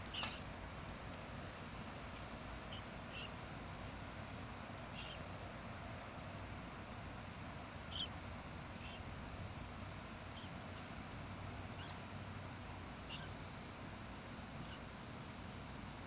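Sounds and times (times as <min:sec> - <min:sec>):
steady background hum: 0:00.0 - 0:16.0
high animal chirps: 0:00.1 - 0:00.4.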